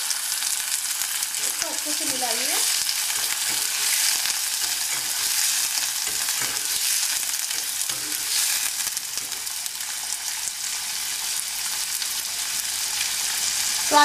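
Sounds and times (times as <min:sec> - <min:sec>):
vegetables sizzling in hot oil: 0:00.0 - 0:14.0
spatula scraping pan: 0:01.4 - 0:09.5.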